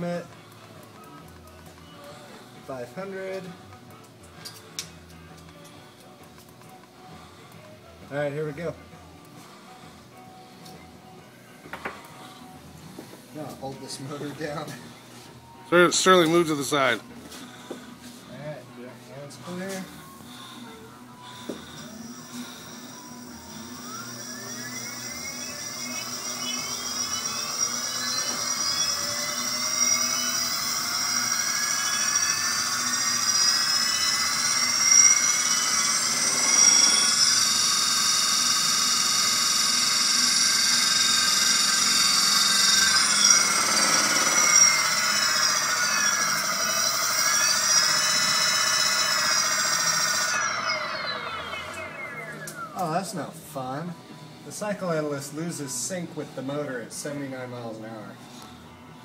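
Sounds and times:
electric motor whine: 19.5 - 54.2.

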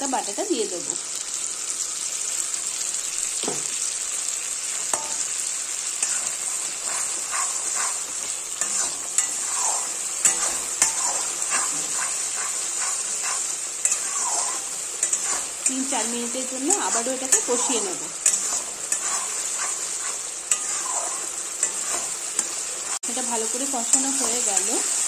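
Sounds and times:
paste sizzling in oil: 0.0 - 25.0
metal spatula scraping: 6.0 - 25.0.

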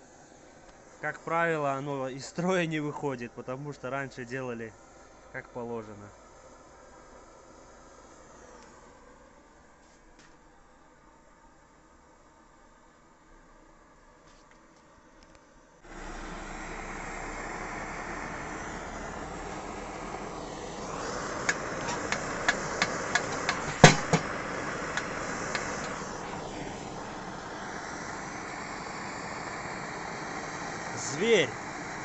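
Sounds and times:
pressure stove burner rushing: 15.8 - 32.0.

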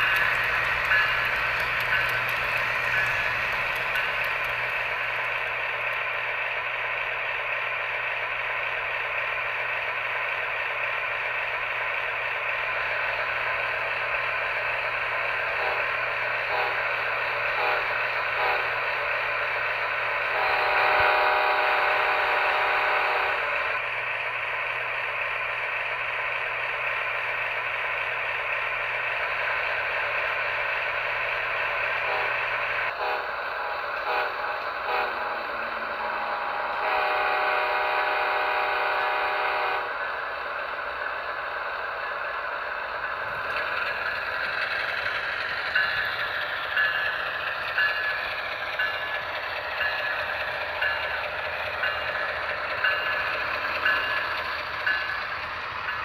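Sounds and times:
model train rattling on track: 0.0 - 56.0
locomotive horn: 15.6 - 15.9, 16.5 - 18.8, 20.3 - 23.8, 32.1 - 33.4, 34.0 - 35.4, 36.0 - 40.0.

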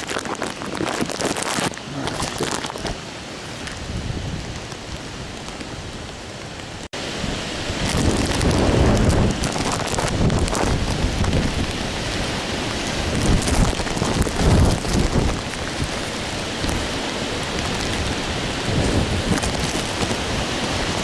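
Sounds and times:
rain: 0.0 - 21.0
wind buffeting microphone: 3.6 - 6.0, 7.2 - 21.0.

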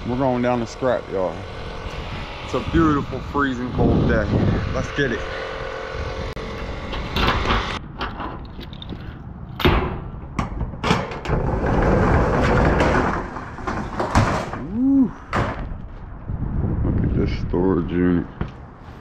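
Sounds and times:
clunks and knocks: 9.6 - 14.7, 15.3 - 15.8.

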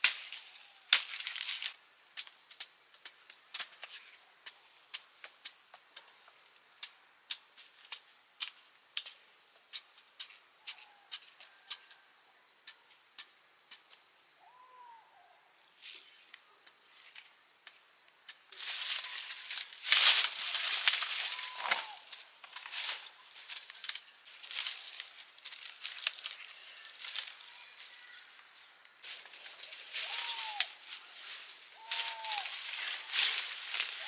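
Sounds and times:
rustling and crunching of plants: 0.0 - 4.2, 18.2 - 34.0
high insect drone: 0.0 - 34.0.

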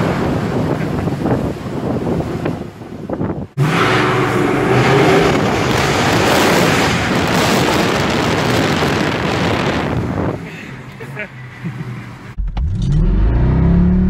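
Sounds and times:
car engine revving: 3.6 - 10.3, 11.7 - 14.0.

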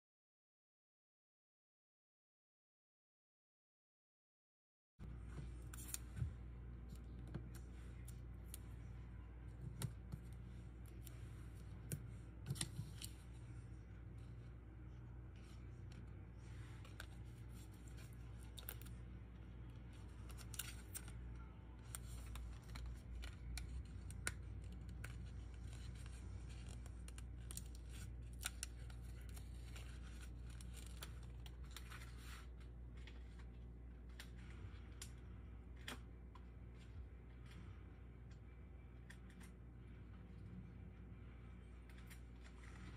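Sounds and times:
steady low hum: 5.0 - 42.9.

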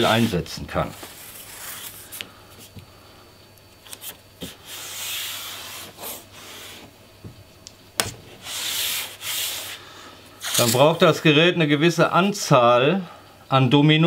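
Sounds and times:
tape rubbed onto plywood: 4.4 - 6.9, 8.3 - 9.8, 10.4 - 11.0.

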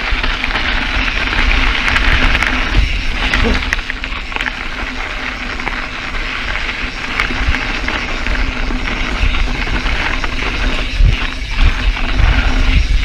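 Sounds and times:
bike tyres crunching on gravel: 0.0 - 13.0
wind rumble on microphone: 0.0 - 13.0.

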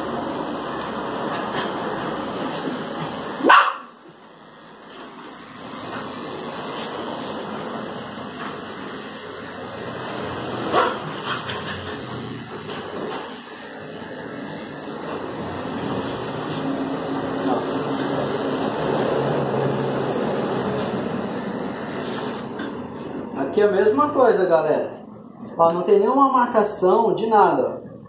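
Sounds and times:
electric clippers humming: 0.0 - 23.2
dog barking: 3.4 - 3.9, 10.7 - 11.1.

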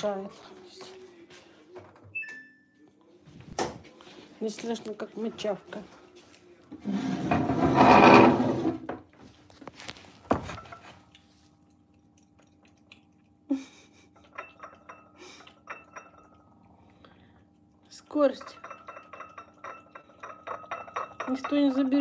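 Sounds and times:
cat lapping from a saucer: 9.2 - 22.0
saucer clinking on tile floor: 14.2 - 16.4, 18.4 - 22.0.

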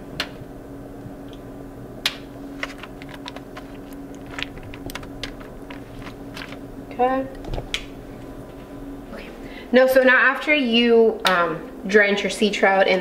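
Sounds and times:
steady hum: 0.0 - 13.0
aluminium foil crinkling: 2.5 - 6.7.

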